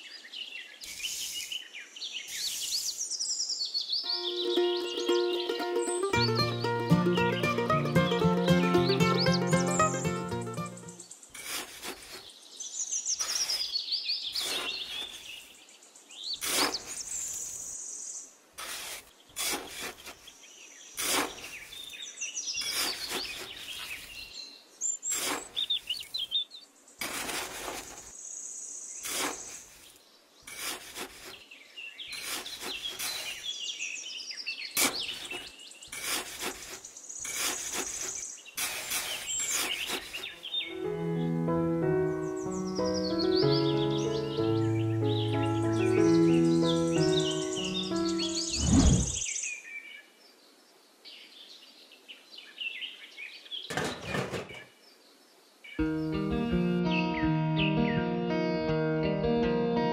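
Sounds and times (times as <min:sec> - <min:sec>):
birds chirping: 0:00.0 - 0:11.4, 0:31.2 - 0:49.5
trowel scraping damp sand: 0:09.5 - 0:12.4, 0:13.2 - 0:15.6, 0:16.4 - 0:17.7, 0:18.6 - 0:22.0, 0:22.6 - 0:24.3, 0:25.0 - 0:26.3, 0:27.0 - 0:28.2, 0:29.0 - 0:33.6, 0:34.8 - 0:40.6.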